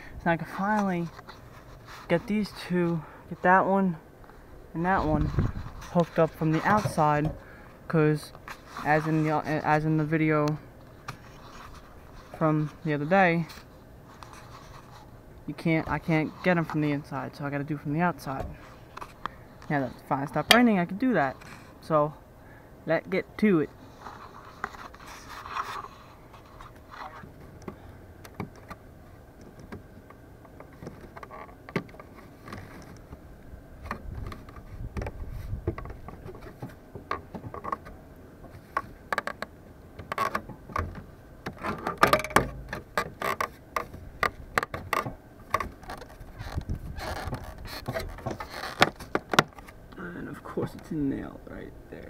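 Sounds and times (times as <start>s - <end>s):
ladder being handled: 40.0s - 49.7s.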